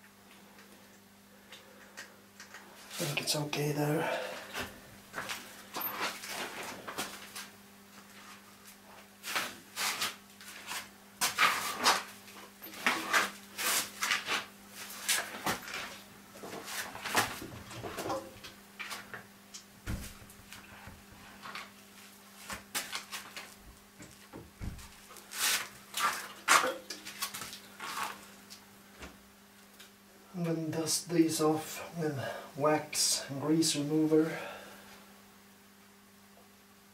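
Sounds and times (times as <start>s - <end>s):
steady low hum: 0.0s - 36.9s.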